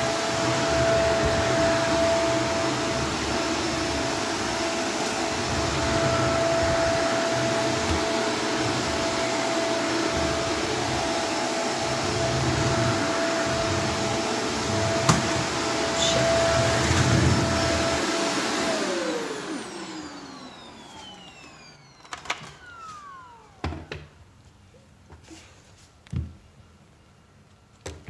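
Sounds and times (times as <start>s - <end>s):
vacuum cleaner running: 0.0s - 24.4s
motor winding down: 18.6s - 24.0s.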